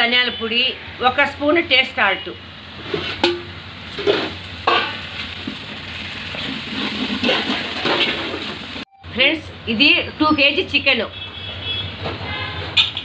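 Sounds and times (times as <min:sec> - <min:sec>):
food sizzling in oil: 0:03.8 - 0:08.8
metal spatula scraping pot: 0:06.4 - 0:08.5.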